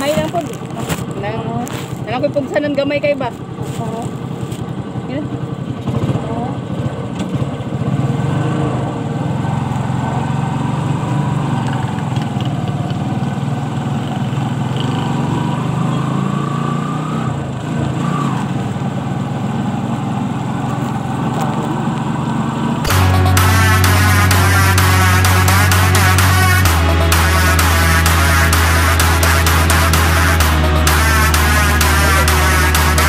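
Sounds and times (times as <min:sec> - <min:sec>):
motorcycle engine running: 0:00.0 - 0:16.4, 0:17.3 - 0:33.0
road noise: 0:00.0 - 0:33.0
electronic dance music: 0:22.9 - 0:33.0.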